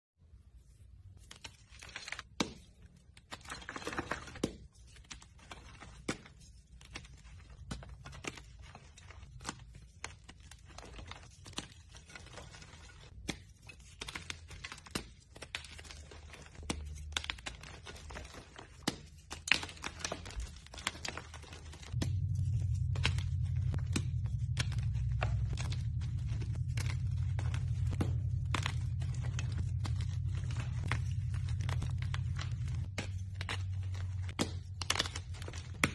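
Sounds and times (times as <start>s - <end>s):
hands crushing chalk: 1.2s - 35.9s
low hum: 21.2s - 35.9s.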